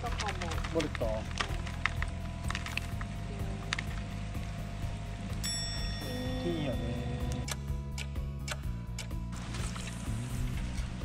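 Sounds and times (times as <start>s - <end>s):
low steady rumble: 0.0s - 11.0s
soft background music: 0.0s - 11.0s.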